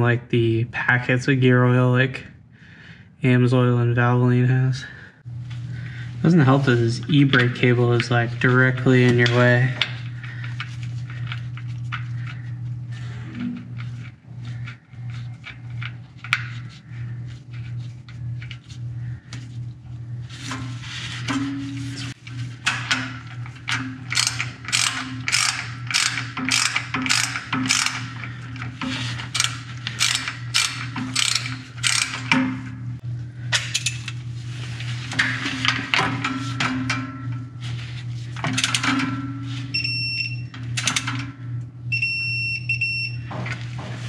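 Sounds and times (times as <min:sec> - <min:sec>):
socket ratchet clicking: 0:24.1 - 0:28.1, 0:29.3 - 0:32.4.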